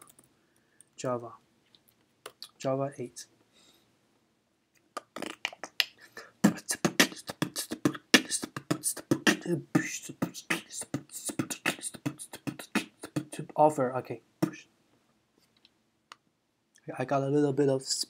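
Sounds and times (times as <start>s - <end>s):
man beatboxing: 5.0s - 13.8s, 14.4s - 14.7s.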